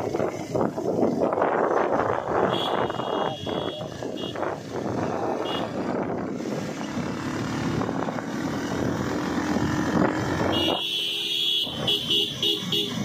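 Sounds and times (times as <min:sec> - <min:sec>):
vehicle engine and road noise: 0:00.0 - 0:13.0
vehicle horn blast: 0:02.4 - 0:04.4, 0:05.4 - 0:05.8, 0:10.5 - 0:13.0.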